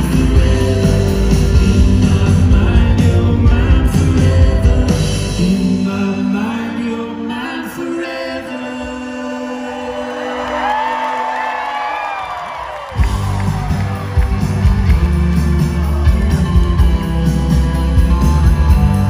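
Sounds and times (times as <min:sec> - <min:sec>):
live rock band playing: 0:00.0 - 0:07.4, 0:12.9 - 0:19.0
person singing: 0:00.0 - 0:10.8.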